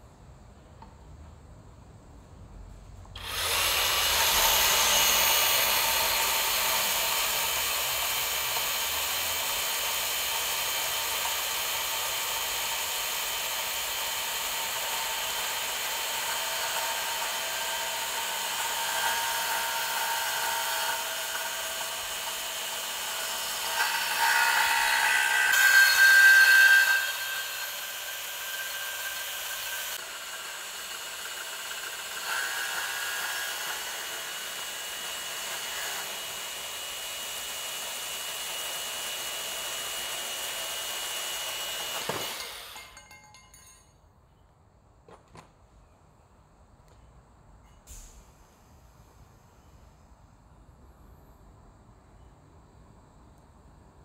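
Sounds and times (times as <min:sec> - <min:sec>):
band saw cutting metal: 0:03.2 - 0:43.2.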